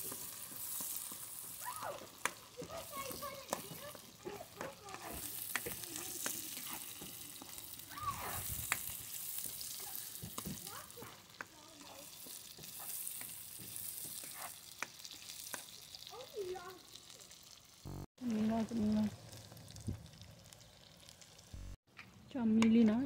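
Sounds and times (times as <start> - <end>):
spatula stirring: 0.0 - 15.9
oil sizzling in a wok: 0.0 - 23.0.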